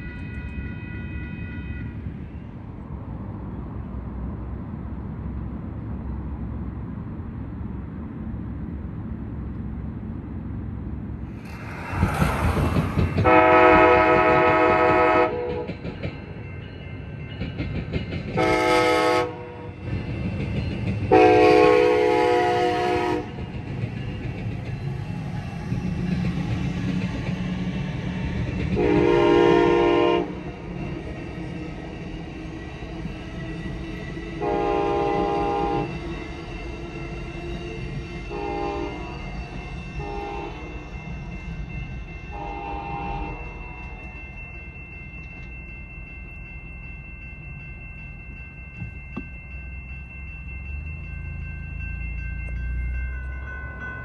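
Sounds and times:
passing train rumble and clatter: 0.0 - 54.0
locomotive air horn blasts: 13.2 - 15.7, 18.4 - 19.7, 21.1 - 23.4, 28.8 - 30.4, 34.4 - 35.9, 38.3 - 39.1, 40.0 - 40.6, 42.3 - 43.5.

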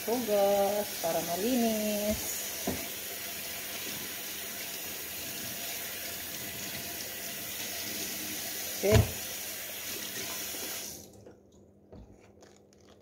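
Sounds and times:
tap water splashing into sink: 2.0 - 4.2, 8.6 - 11.2.

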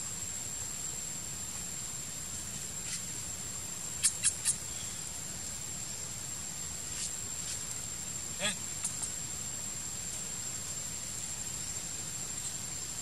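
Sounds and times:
high insect-like whine: 0.0 - 13.0
animal squeaks: 4.0 - 4.6.

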